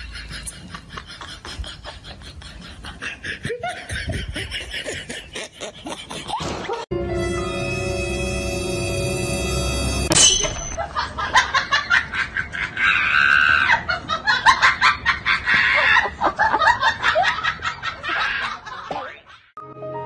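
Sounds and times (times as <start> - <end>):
person laughing hard: 0.0 - 6.9, 10.8 - 19.5.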